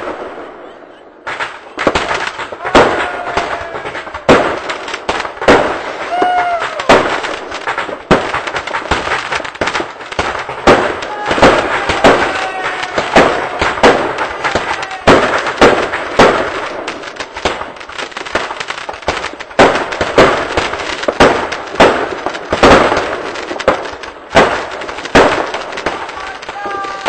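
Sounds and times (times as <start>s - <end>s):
fireworks bangs: 0.0s - 27.0s
fireworks crackling hiss: 1.3s - 27.0s.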